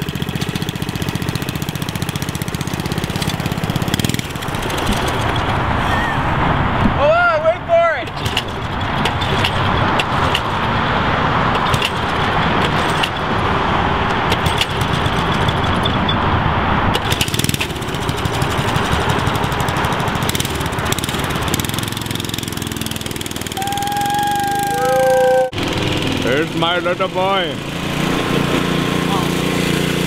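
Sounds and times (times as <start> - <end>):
small engine running: 0.0 - 5.8, 14.3 - 15.8, 17.0 - 30.0.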